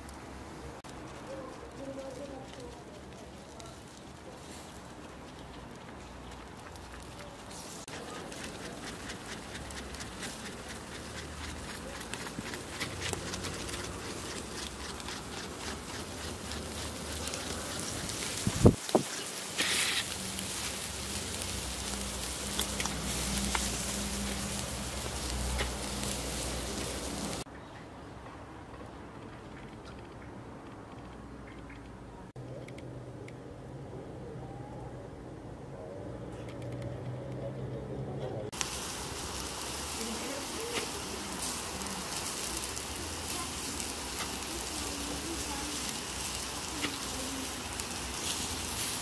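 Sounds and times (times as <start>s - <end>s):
meat sizzling and crackling on grill: 0.0s - 27.5s, 38.5s - 49.0s
faint even hiss: 17.0s - 27.5s, 38.6s - 49.0s.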